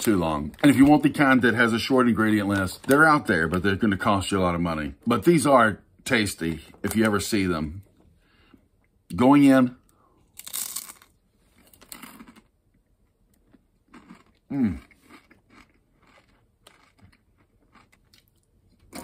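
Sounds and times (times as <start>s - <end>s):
crunching bite: 10.4s - 11.1s, 13.4s - 19.0s
chewing crunches: 10.4s - 12.5s, 13.3s - 19.0s
closed-mouth mmm: 14.5s - 15.1s.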